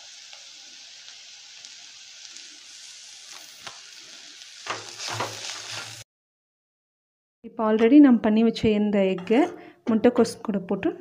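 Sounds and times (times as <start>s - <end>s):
cabbage sizzling in oil: 0.0s - 6.1s.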